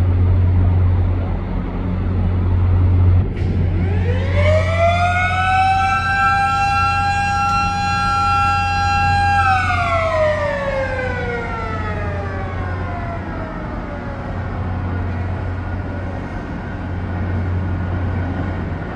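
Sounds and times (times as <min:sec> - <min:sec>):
low steady hum: 0:00.0 - 0:18.9
warning siren wailing: 0:03.7 - 0:16.3.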